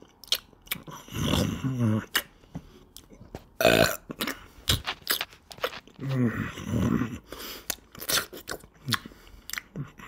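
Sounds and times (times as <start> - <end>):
man burping: 3.6 - 4.4
voiced hum with mouth full: 3.8 - 10.0.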